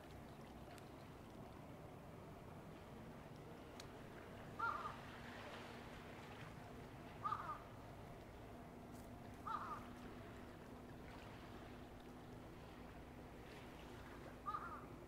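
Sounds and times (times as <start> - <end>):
faint background hum: 0.0 - 15.0
gull calling: 4.6 - 5.0, 7.2 - 7.7, 9.4 - 10.0, 14.4 - 14.9.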